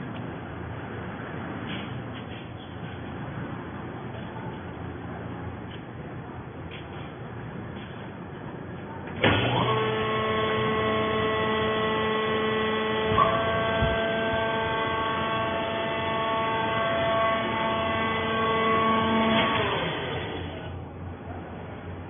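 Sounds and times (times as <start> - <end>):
hydraulic pump whining: 9.2 - 20.9.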